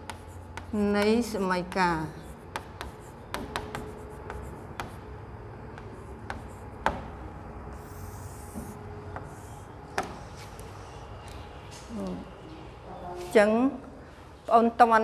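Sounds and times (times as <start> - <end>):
chalk scratching on board: 0.0 - 5.0, 5.8 - 7.0, 7.7 - 10.6
chalk tapping on board: 0.0 - 5.0, 5.7 - 7.1, 7.7 - 10.4.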